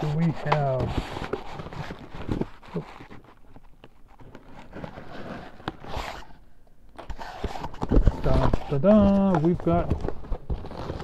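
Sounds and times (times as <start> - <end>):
plastic mailer rustling and crinkling: 0.0 - 6.3, 7.0 - 11.0.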